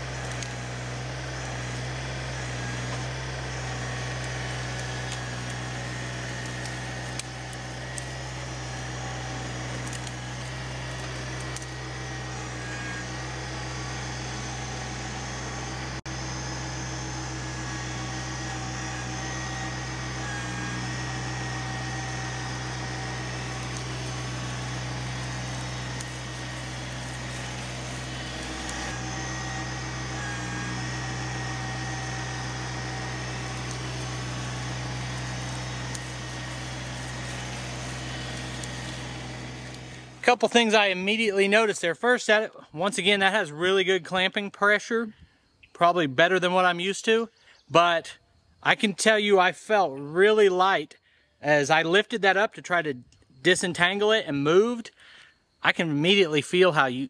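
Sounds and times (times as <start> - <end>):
tractor diesel engine running: 0.0 - 44.2.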